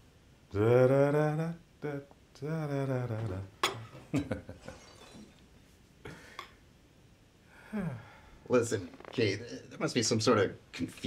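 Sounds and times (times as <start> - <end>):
person humming: 0.5 - 3.9
tableware clinking: 3.6 - 4.0, 4.7 - 5.4.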